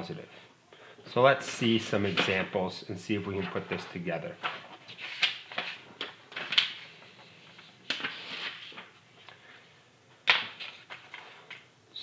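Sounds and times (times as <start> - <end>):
paper sheets rustling: 1.4 - 9.0, 10.3 - 11.7.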